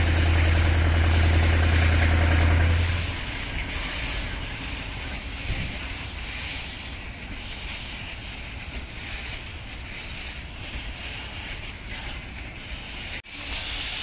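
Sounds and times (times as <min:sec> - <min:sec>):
diesel engine droning: 0:00.0 - 0:06.4
wind noise: 0:00.0 - 0:13.2.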